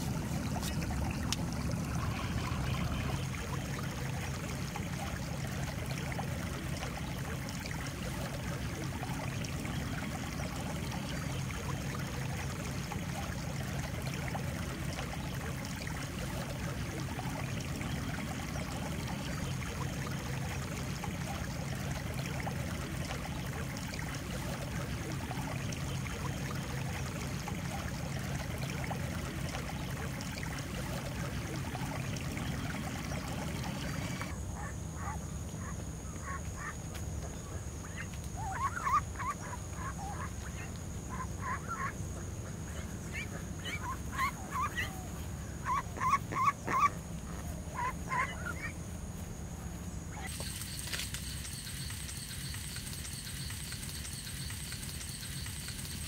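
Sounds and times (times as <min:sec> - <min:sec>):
duck calls: 0:45.6 - 0:47.0, 0:47.8 - 0:48.7.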